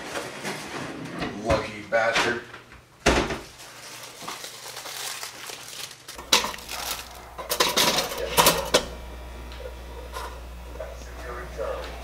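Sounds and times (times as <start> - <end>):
foil wrapper crinkling and tearing: 3.5 - 7.2.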